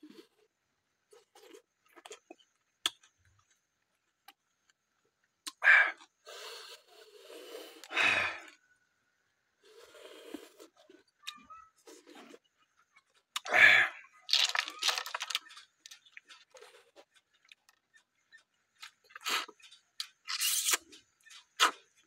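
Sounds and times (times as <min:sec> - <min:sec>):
snail shells clicking: 0:14.3 - 0:18.0
soft mouth noises: 0:20.3 - 0:21.9.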